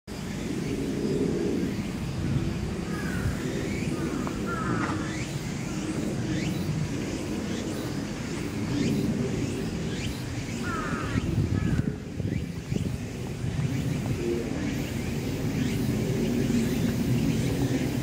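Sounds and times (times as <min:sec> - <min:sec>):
birds calling: 0:00.1 - 0:18.0
low city rumble: 0:00.1 - 0:18.0.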